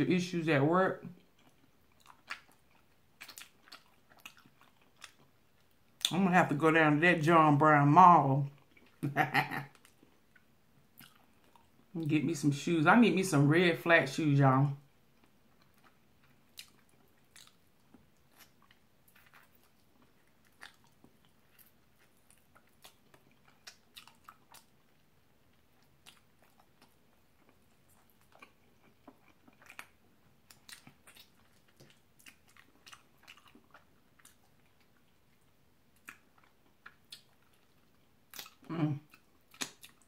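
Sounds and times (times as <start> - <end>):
wet mouth clicks and smacks: 38.3 - 40.0.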